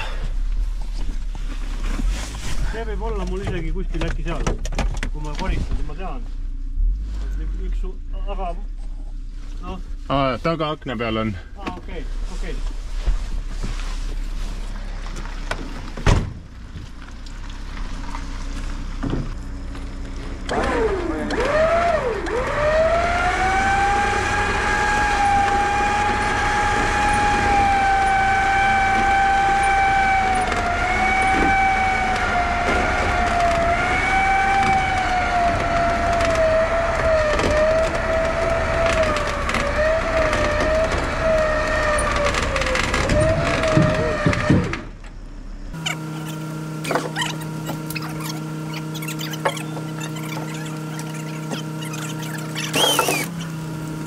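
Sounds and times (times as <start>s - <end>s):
motor high whine: 19.0s - 54.0s.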